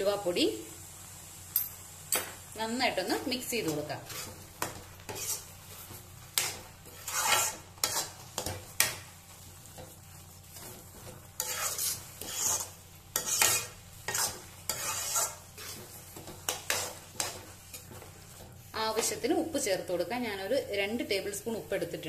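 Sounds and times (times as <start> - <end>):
spoon scraping in metal pan: 3.2 - 19.3.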